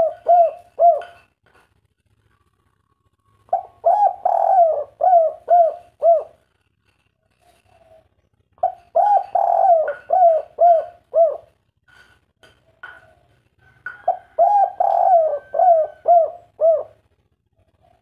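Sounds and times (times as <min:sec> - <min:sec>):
dove cooing: 0:00.0 - 0:01.3, 0:03.3 - 0:06.6, 0:07.3 - 0:11.7, 0:12.7 - 0:18.0.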